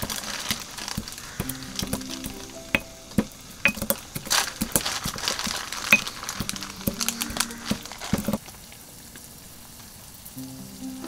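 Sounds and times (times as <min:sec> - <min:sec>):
pestle crushing peppercorns: 0:00.0 - 0:08.4
soft background music: 0:01.4 - 0:11.0.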